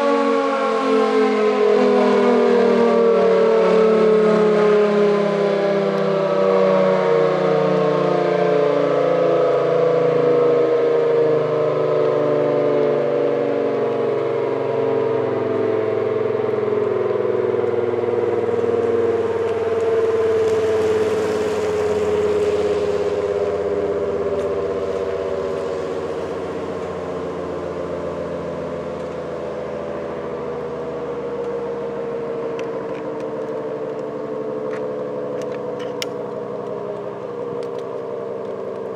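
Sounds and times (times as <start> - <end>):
siren winding down: 0.0 - 38.9.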